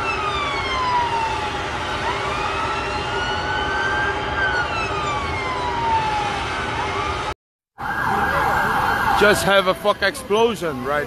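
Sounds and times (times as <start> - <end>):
city noise: 0.0 - 11.0
emergency sirens wailing: 0.0 - 11.0.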